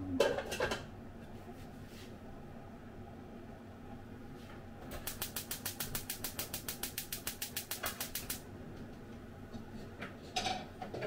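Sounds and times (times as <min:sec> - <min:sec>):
frying pan hissing ticks: 0:04.9 - 0:08.4.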